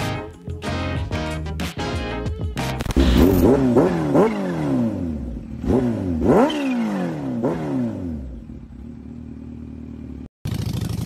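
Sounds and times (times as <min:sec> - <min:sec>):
motorcycle engine revving and idling: 0:02.2 - 0:11.0.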